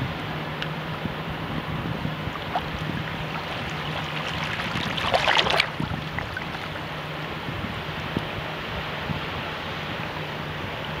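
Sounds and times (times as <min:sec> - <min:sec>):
shallow water lapping: 0:01.7 - 0:08.6
small wave splash: 0:02.0 - 0:08.2.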